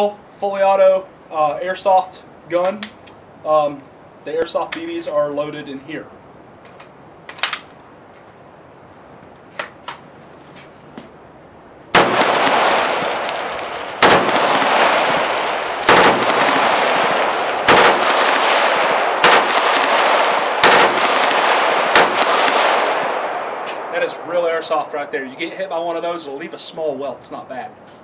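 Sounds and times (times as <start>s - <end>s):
rifle firing bursts: 11.9s - 23.9s.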